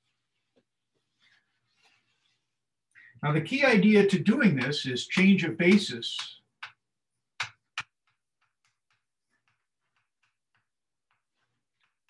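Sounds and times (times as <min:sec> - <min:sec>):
chalk tapping on blackboard: 0:04.5 - 0:06.8, 0:07.4 - 0:12.0.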